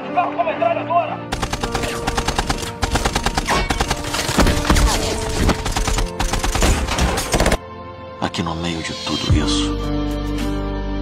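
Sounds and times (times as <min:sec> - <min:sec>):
rapid automatic gunfire: 0:01.3 - 0:07.6.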